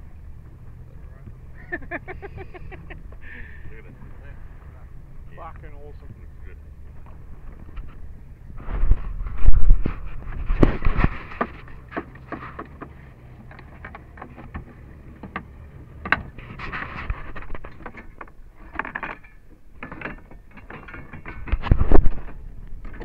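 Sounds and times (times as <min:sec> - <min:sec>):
anchor chain rattling: 0:10.1 - 0:23.0.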